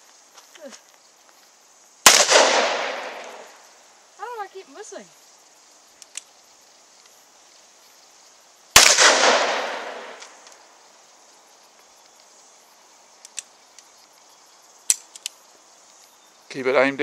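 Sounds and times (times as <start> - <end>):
loud gunshot echoing: 2.1 - 3.5, 8.8 - 10.4.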